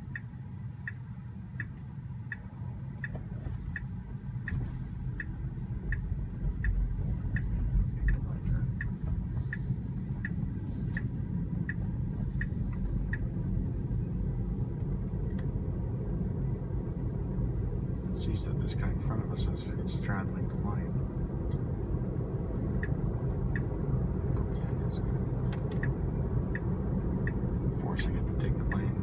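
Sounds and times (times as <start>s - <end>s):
road and tyre rumble: 0.0s - 29.0s
turn signal ticking: 0.0s - 29.0s.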